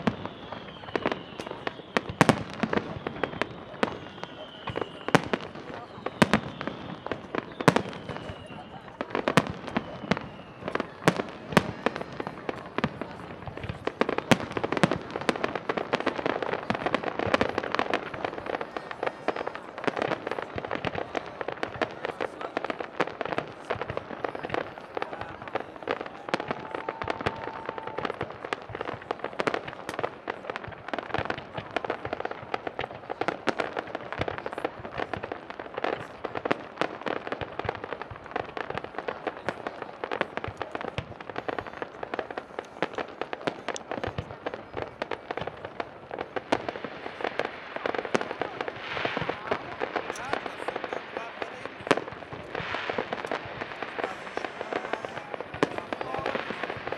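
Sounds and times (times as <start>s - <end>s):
fireworks bangs and crackling: 0.0s - 56.9s.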